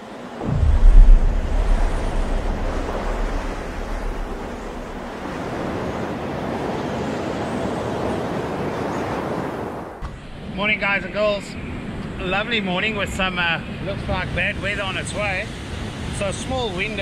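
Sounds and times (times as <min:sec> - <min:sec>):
wind buffeting microphone: 0:00.4 - 0:07.5
surf washing: 0:00.4 - 0:08.4.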